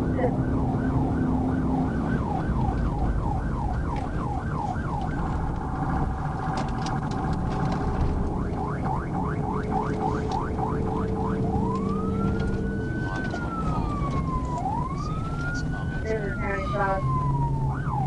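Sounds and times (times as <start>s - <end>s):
car engine and road noise: 0.0s - 18.0s
police siren yelping: 0.0s - 18.0s.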